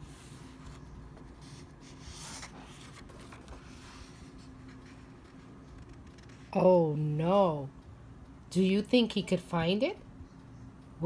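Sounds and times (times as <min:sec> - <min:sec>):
book page turning: 0:00.0 - 0:06.5
paper rustling: 0:00.0 - 0:06.5.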